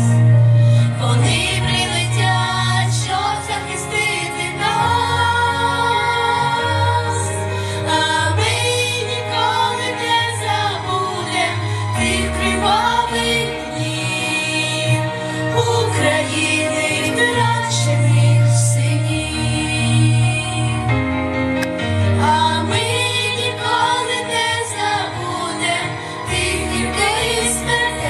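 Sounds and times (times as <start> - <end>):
instrumental accompaniment with bass: 0.0 - 28.0
girls singing together: 1.0 - 7.4, 22.2 - 28.0.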